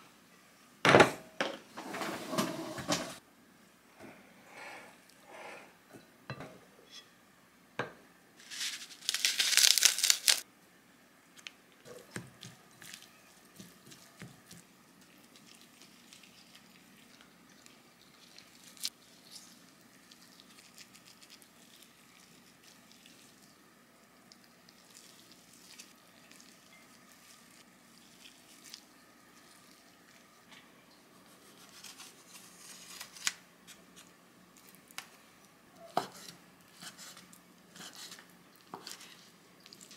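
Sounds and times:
plastic crinkling and tearing: 8.4s - 10.4s.

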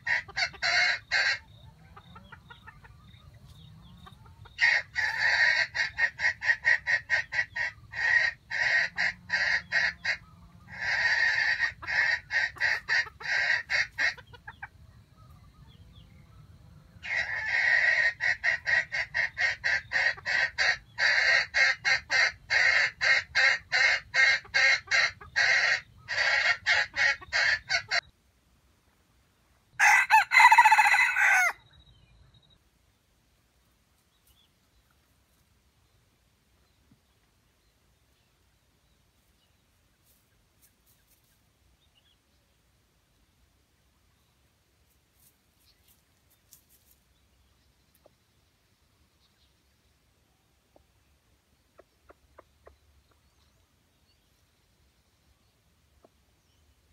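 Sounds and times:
chicken clucking: 0.0s - 28.1s, 50.5s - 54.3s, 55.8s - 56.9s
rooster crowing: 29.8s - 31.6s.

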